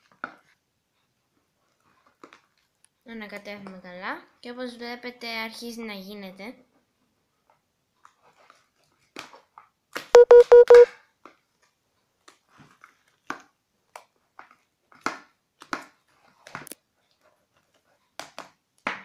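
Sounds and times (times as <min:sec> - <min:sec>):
loud electronic beeps: 0:10.2 - 0:10.9.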